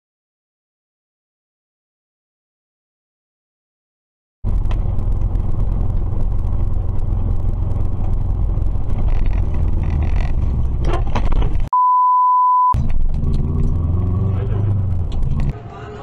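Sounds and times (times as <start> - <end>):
car road and engine rumble: 4.4 - 11.7, 12.8 - 16.0
censor bleep tone: 11.7 - 12.8.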